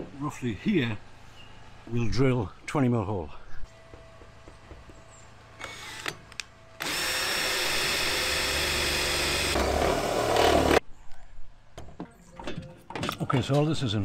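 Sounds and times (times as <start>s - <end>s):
cordless drill boring sheet metal: 6.8s - 10.8s.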